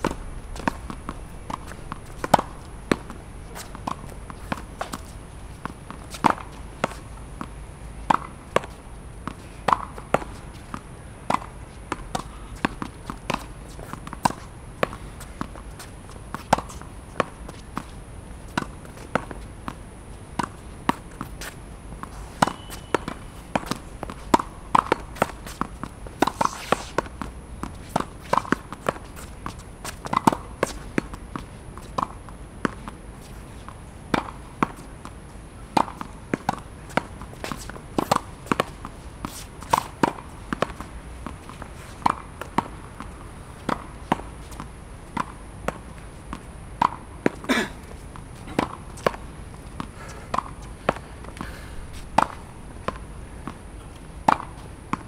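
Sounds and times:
ball bouncing on court: 0.0 - 7.5, 22.4 - 32.9, 35.8 - 43.0
racket striking tennis ball: 0.0 - 15.6, 18.5 - 33.0, 34.1 - 34.9, 35.7 - 53.6, 54.2 - 55.0.

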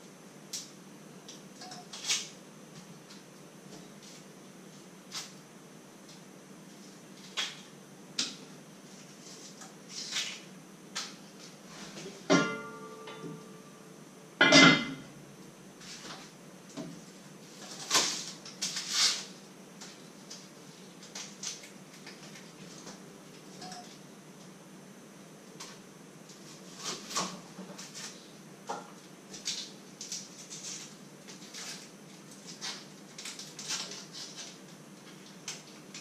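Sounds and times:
ringing metal clank: 12.3 - 13.4.

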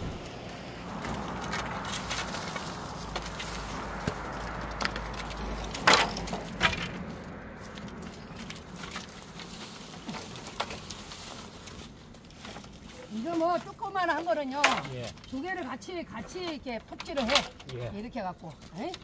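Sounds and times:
bamboo poles knocking: 0.0 - 7.1.

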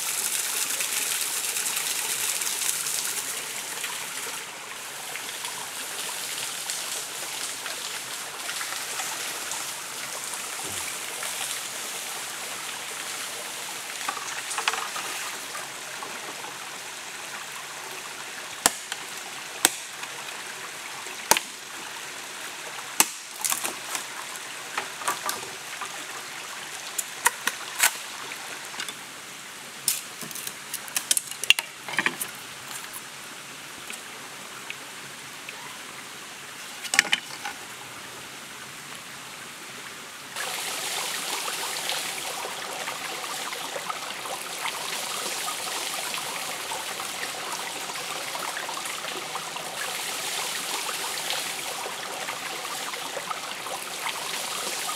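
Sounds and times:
stream flowing: 0.0 - 54.9
machete knocking bamboo: 18.6 - 18.9, 19.6 - 19.9, 23.0 - 23.6.

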